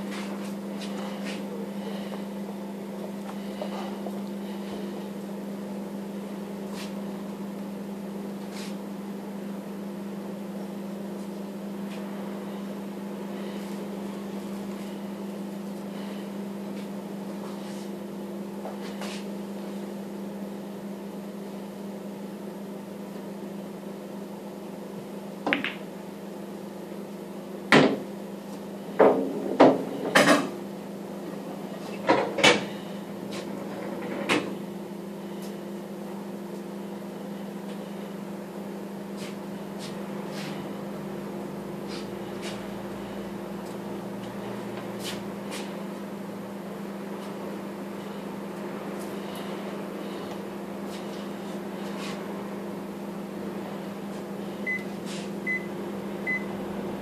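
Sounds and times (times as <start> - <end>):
steady low hum: 0.0 - 57.0
pool balls clacking: 25.4 - 25.9.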